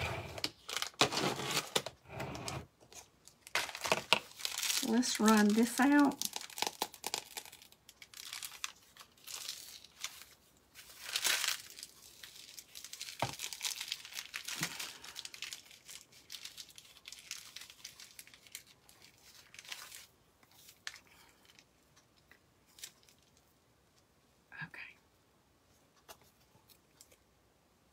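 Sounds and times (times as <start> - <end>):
plastic piping bag crinkling: 0.4 - 1.9, 2.9 - 23.5.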